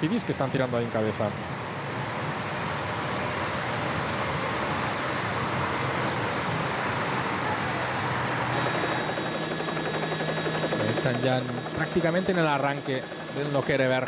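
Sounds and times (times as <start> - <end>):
motorbikes and cars passing: 1.4 - 8.7.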